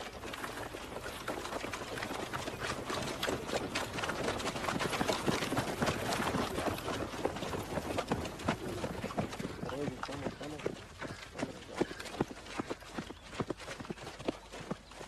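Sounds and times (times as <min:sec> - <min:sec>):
running feet on dirt: 0:00.0 - 0:15.0.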